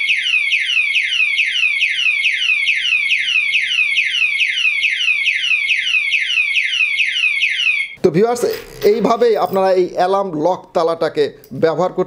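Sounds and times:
electronic alarm whoops: 0.0 - 8.0.

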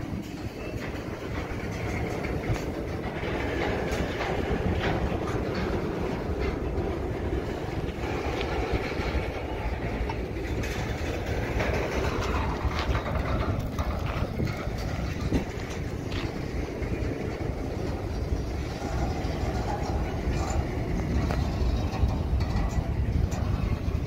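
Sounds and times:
clicks and knocks from train cars: 0.0 - 24.0
train wheels rumbling on rails: 0.0 - 24.0.

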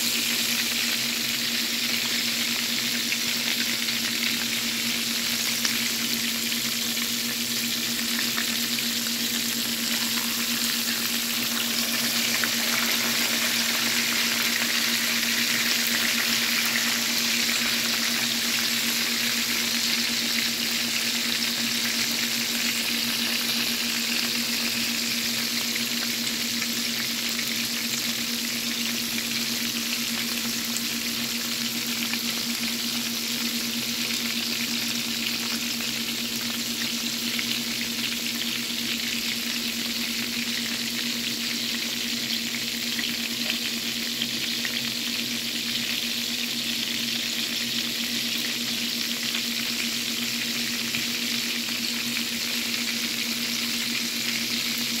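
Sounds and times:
meat sizzling in oil: 0.0 - 55.0.

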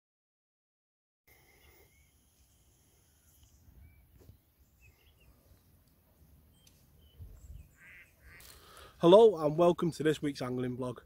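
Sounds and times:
faint bird chirps: 1.3 - 8.9.

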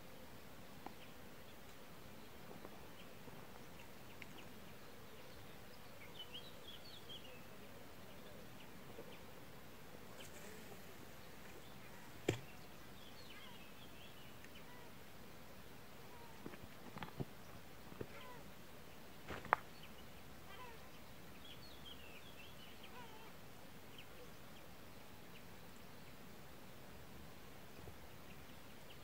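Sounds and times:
faint steady hiss: 0.0 - 29.0
faint bird chirps: 10.1 - 15.0, 16.0 - 16.5, 17.4 - 18.5, 19.8 - 24.7.

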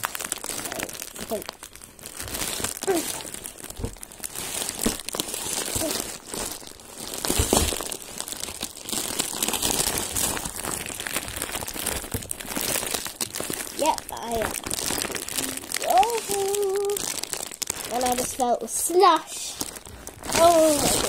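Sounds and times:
plastic wrapping crinkling: 0.0 - 21.0.

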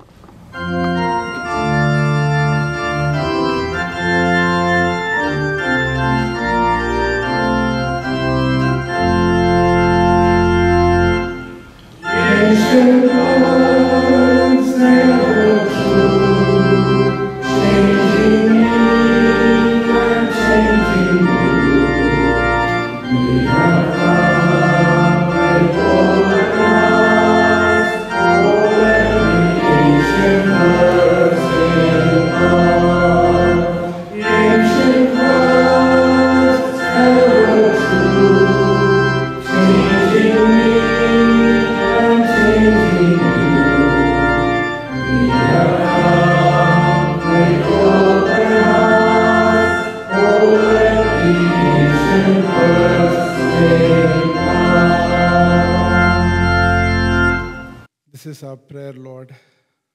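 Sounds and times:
organ music: 0.0 - 59.2.

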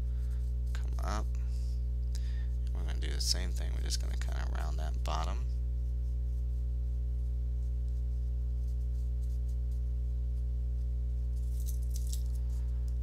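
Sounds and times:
low electrical hum: 0.0 - 13.0
pencil scratching on paper: 5.8 - 9.9.

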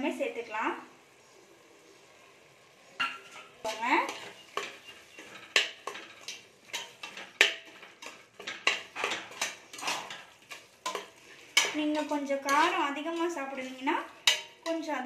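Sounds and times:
metal spoon scraping pot: 3.0 - 14.9.

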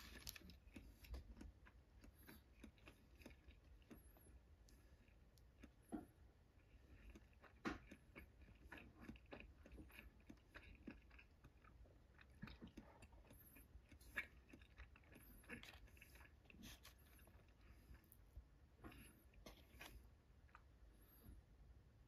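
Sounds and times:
chewing mouth clicks: 0.1 - 5.9, 6.6 - 18.2.

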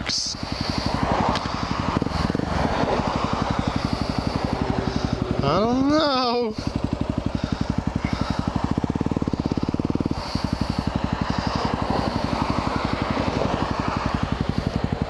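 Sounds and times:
cars passing: 0.0 - 15.0
motorcycle engine idling: 0.0 - 15.0.

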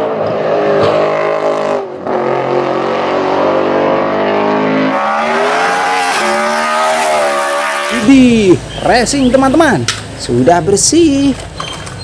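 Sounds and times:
race car engine revving: 0.0 - 8.3.

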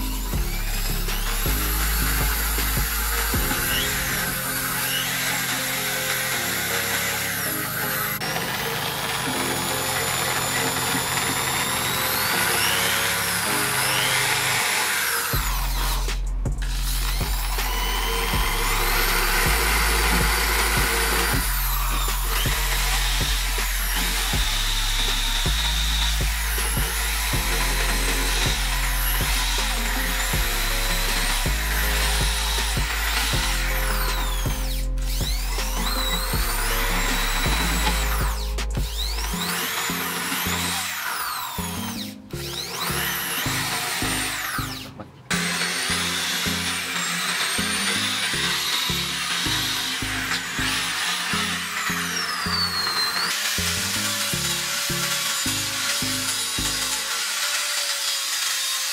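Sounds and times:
background music with beat: 0.0 - 13.8, 15.2 - 41.0
rotary tool grinding steel: 0.0 - 58.9.

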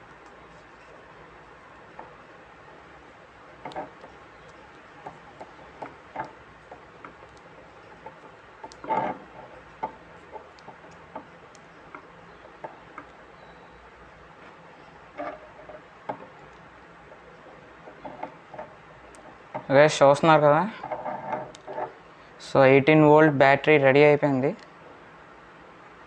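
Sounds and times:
tape clicking and crinkling: 0.0 - 2.8, 3.6 - 13.3.

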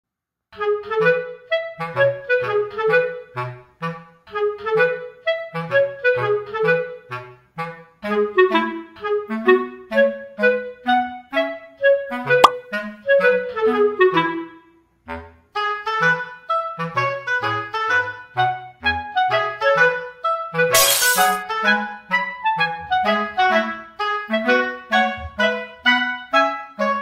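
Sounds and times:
sharp click: 20.8 - 21.4.

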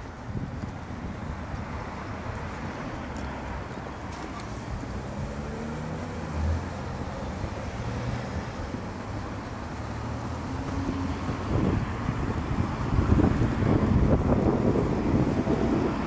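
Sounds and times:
road traffic: 0.0 - 16.0.

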